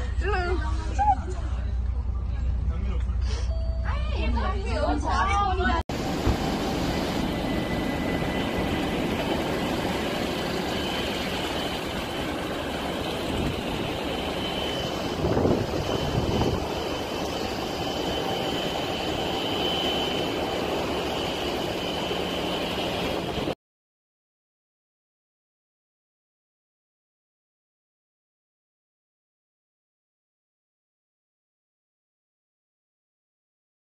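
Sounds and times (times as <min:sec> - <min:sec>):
wind buffeting microphone: 0:05.9 - 0:19.2
faint high whine: 0:05.9 - 0:23.6
strong wind roaring: 0:05.9 - 0:23.6.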